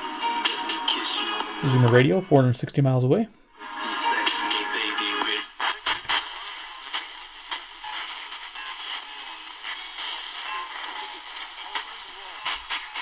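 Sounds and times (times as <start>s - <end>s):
radio static hissing: 4.8s - 13.0s.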